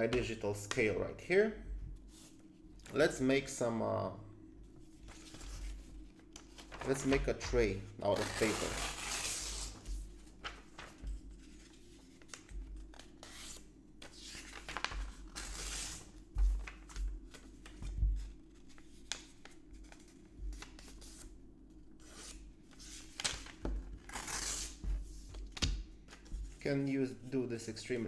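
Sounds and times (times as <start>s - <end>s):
paper rustling and creasing: 4.7s - 21.2s.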